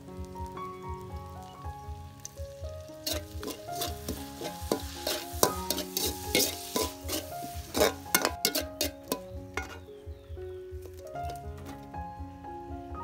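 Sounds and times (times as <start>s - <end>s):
food sizzling in a pan: 0.0s - 9.8s
background music: 0.0s - 13.0s
spoon scraping a pan: 3.0s - 9.9s.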